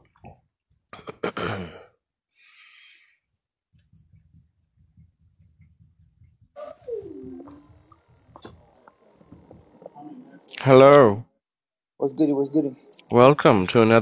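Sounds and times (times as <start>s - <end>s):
faint low hum: 3.8s - 11.3s.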